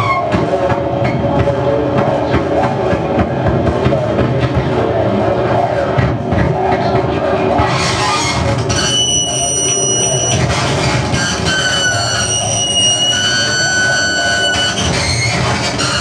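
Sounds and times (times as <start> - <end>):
rumbling electronic noise: 0.0 - 16.0
high steady whistling tones: 8.7 - 10.5, 11.1 - 16.0.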